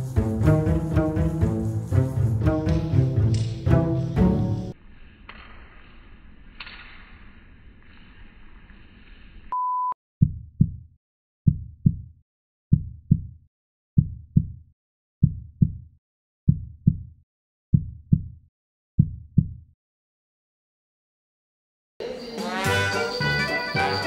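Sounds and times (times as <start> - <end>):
heartbeat thumps: 10.2 - 10.8, 11.5 - 12.1, 12.7 - 13.4, 14.0 - 14.6, 15.2 - 15.8, 16.5 - 17.1, 17.7 - 18.4, 19.0 - 19.6.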